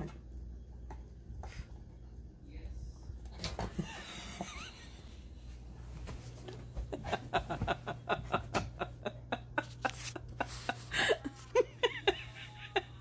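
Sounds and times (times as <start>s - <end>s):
woman stifling laughter: 3.8s - 5.2s, 6.8s - 13.0s.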